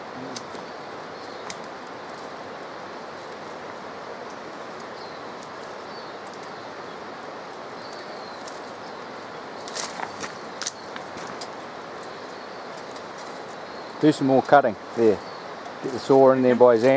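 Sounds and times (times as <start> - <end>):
steady rushing background noise: 0.0 - 16.9
dry brush snapping and crackling: 0.2 - 16.9
faint bird chirps: 4.8 - 11.0, 11.8 - 16.9.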